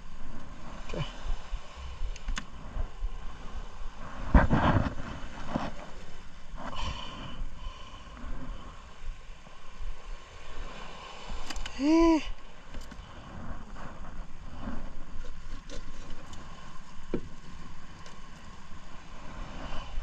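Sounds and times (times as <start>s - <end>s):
short vocal call: 11.7s - 12.3s.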